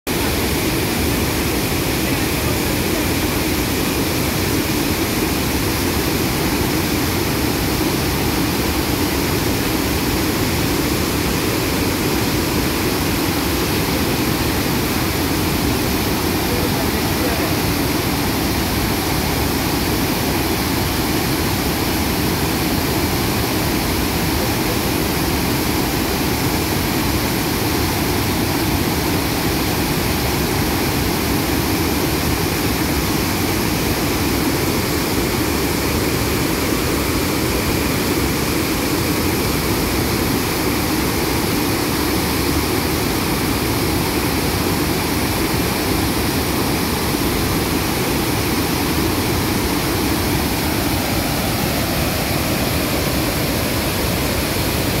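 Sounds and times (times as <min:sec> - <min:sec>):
waterfall rushing: 0:00.1 - 0:55.0.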